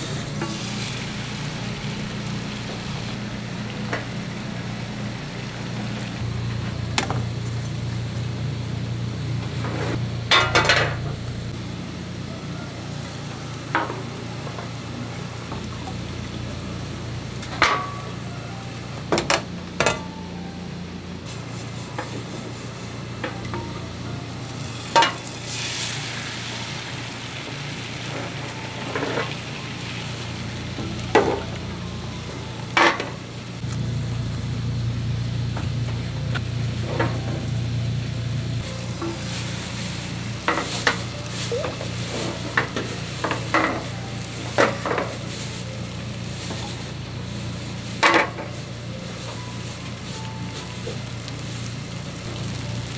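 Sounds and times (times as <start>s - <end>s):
pan and utensils clacking: 9.6s - 11.2s, 17.4s - 18.2s, 24.8s - 25.7s, 32.7s - 33.2s, 40.4s - 45.4s, 47.9s - 49.4s
eggs sizzling in a pan: 24.6s - 31.7s
steady low hum: 26.7s - 52.9s.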